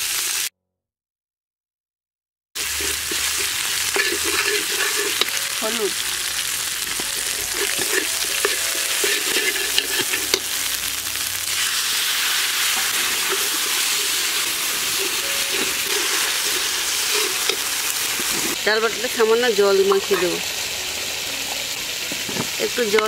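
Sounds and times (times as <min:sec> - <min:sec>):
spice paste sizzling in a pan: 0:00.0 - 0:00.5, 0:02.6 - 0:23.0
stirring scrape: 0:02.6 - 0:06.0, 0:06.8 - 0:10.7, 0:11.5 - 0:18.6.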